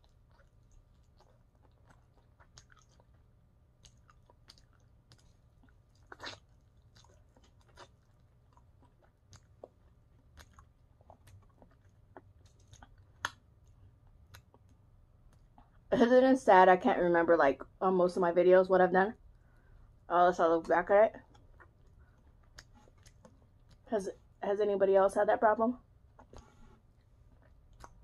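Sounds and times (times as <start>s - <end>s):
chewing with wet mouth clicks: 0.0s - 15.9s, 21.2s - 23.9s, 26.0s - 28.0s
crunching food: 0.0s - 15.9s, 21.2s - 23.9s, 26.0s - 28.0s.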